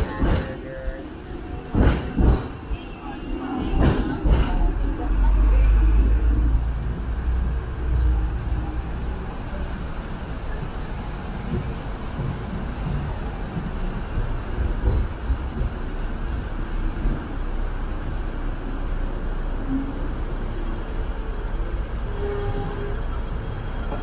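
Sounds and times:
tram knocks: 0.0s - 0.7s, 1.6s - 2.7s, 3.4s - 5.2s, 11.4s - 17.2s
tram rumbling on rails: 0.0s - 24.0s.

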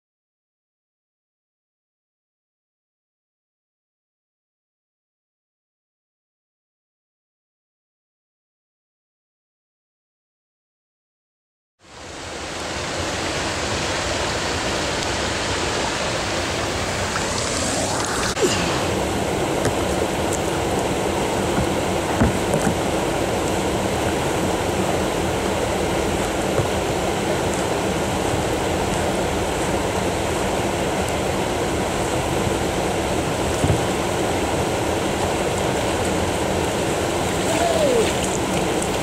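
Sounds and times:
river water flowing: 11.8s - 39.0s.

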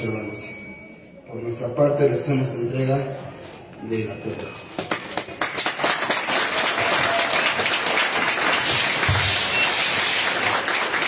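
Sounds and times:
crowd applauding: 4.7s - 11.0s.

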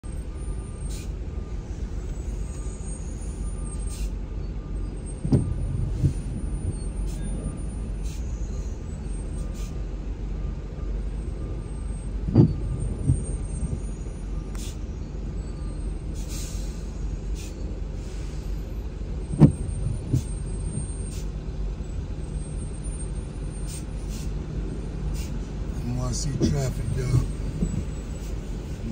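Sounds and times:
car and traffic rumble: 0.0s - 28.9s
windshield wipers thumping: 5.2s - 7.6s, 12.1s - 13.9s, 19.2s - 20.9s, 25.8s - 28.9s.

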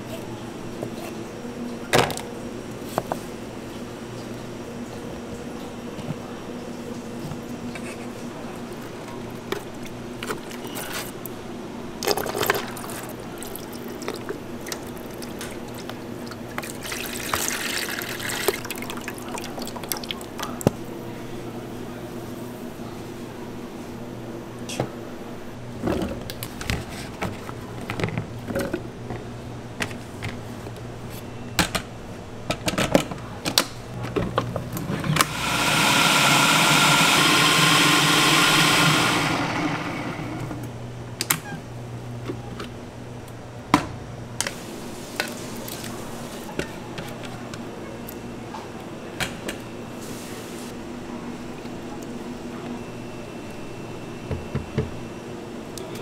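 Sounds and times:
food processor chopping: 35.2s - 40.6s.

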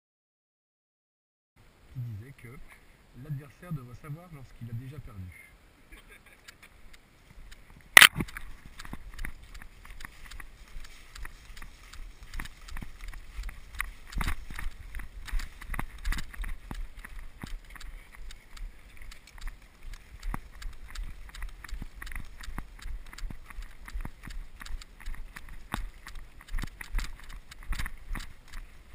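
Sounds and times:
vegetation brushing: 6.0s - 28.9s
running footsteps through dry grass: 6.4s - 28.9s.

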